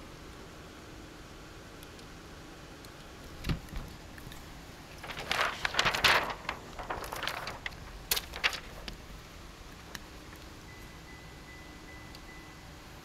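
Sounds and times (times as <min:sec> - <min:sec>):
plastic film crinkling: 0:03.4 - 0:09.2.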